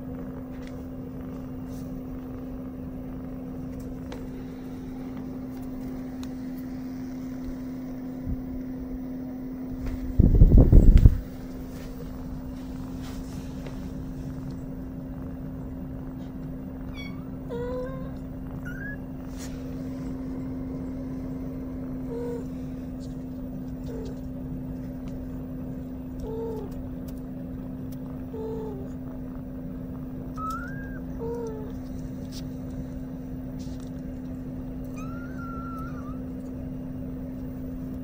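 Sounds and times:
steady low hum: 0:00.0 - 0:38.0
cats mewing softly: 0:11.2 - 0:27.1, 0:27.9 - 0:37.8.

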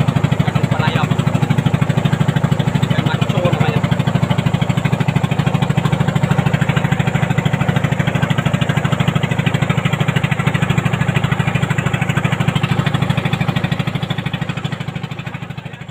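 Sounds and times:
diesel engine thumping: 0:00.0 - 0:15.9.

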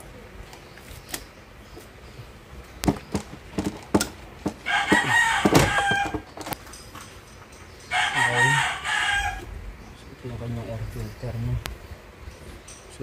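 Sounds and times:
rooster crowing: 0:04.5 - 0:06.4, 0:07.9 - 0:09.6.

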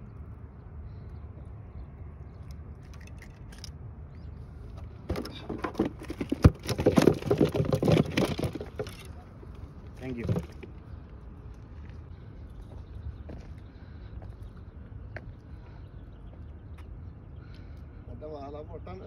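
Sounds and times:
clattering in plastic cooler: 0:05.0 - 0:09.2, 0:10.0 - 0:10.7.

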